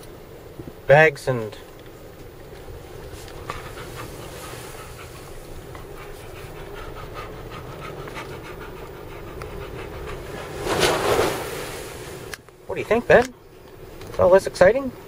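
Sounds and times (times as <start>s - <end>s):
dog panting: 2.7s - 11.7s.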